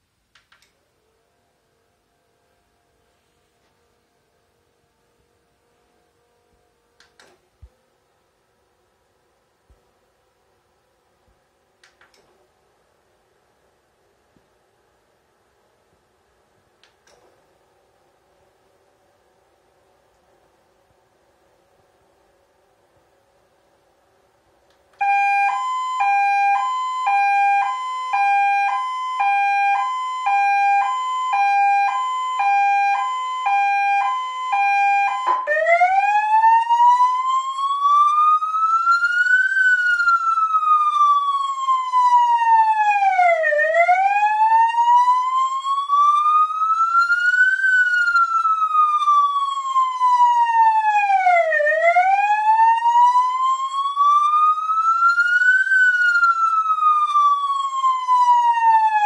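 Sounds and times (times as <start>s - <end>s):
police siren: 0.6s - 10.6s, 24.9s - 59.0s.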